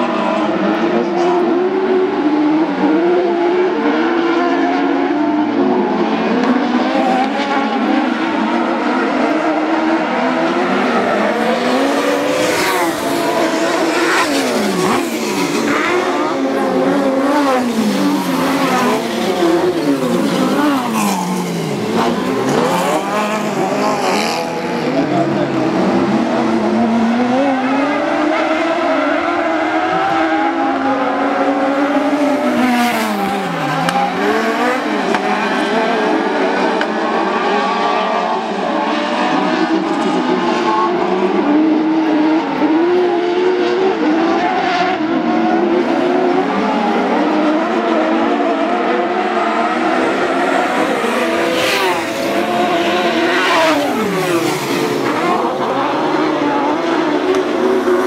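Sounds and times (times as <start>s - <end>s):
racing buggy engines at high revs: 0.0s - 58.0s
buggy passing by: 10.9s - 27.6s.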